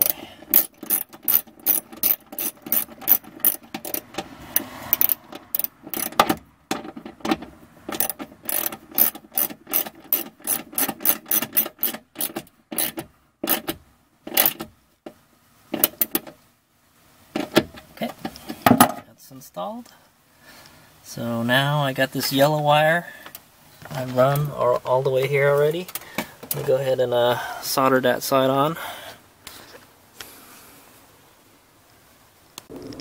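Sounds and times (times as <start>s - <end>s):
hand ratchet clicking: 0.0s - 14.7s.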